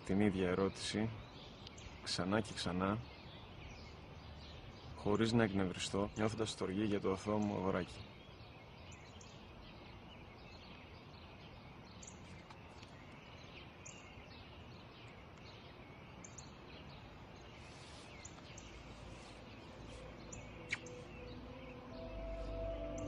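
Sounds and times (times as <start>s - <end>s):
small birds chirping: 0.0s - 23.0s
steady hiss: 16.9s - 23.0s.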